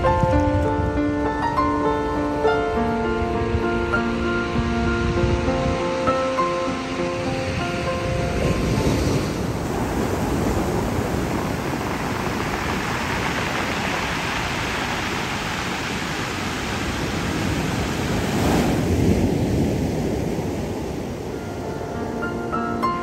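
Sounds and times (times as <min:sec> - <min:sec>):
surf breaking on a pebble beach: 0:07.1 - 0:21.9.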